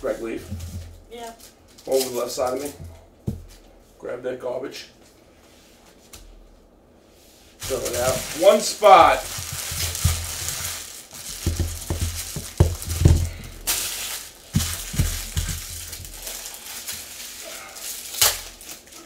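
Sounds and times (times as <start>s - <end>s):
plastic wrappers crinkling: 0.0s - 2.8s, 7.6s - 19.0s
cards knocking on table: 11.4s - 13.5s.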